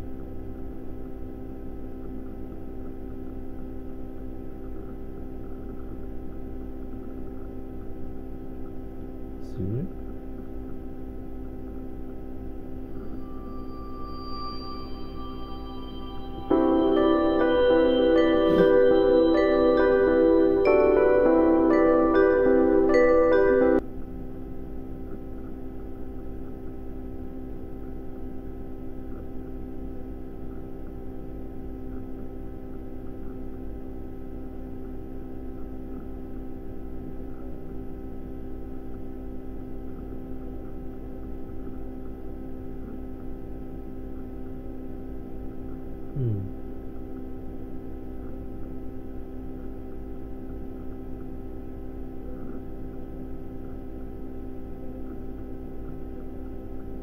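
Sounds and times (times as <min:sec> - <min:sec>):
electrical hum with low rumble: 0:00.0 - 0:57.0
tone sliding down in pitch: 0:12.9 - 0:21.4.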